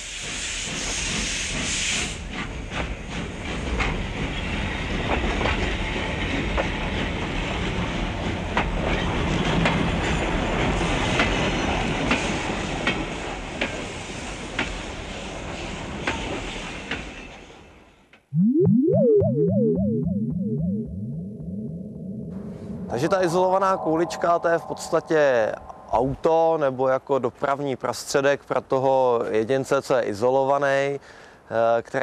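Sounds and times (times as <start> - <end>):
hiss: 0.0 - 2.6
freight train rumbling on tracks: 0.0 - 17.4.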